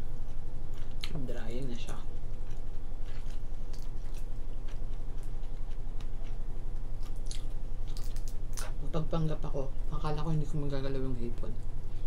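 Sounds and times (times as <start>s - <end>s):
chewing: 0.7s - 1.2s, 2.3s - 8.7s.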